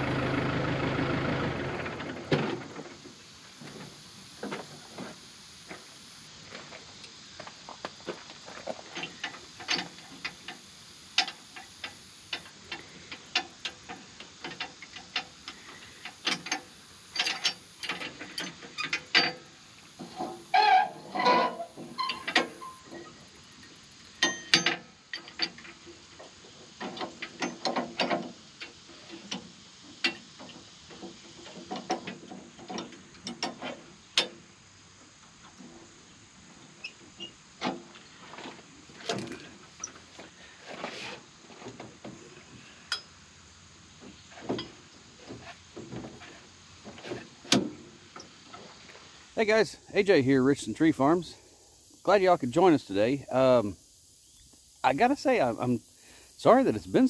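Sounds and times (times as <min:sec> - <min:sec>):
metal parts clicking and clanking: 0:08.9 - 0:10.6, 0:11.2 - 0:25.8, 0:26.8 - 0:34.4.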